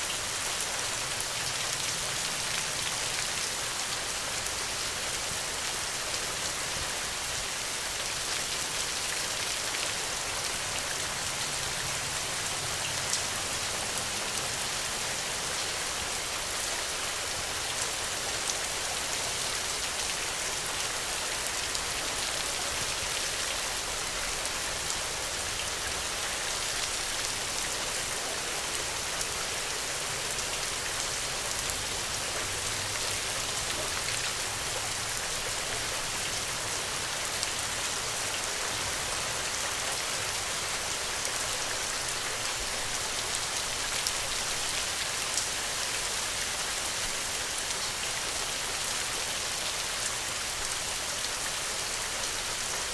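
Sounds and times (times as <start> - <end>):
steady rain falling: 0.0 - 52.9.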